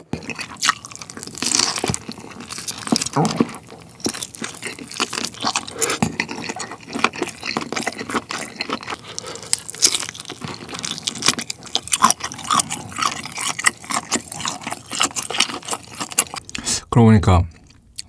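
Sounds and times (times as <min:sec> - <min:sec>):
wet chewing and lip-smacking: 0:00.0 - 0:16.7, 0:17.5 - 0:18.0.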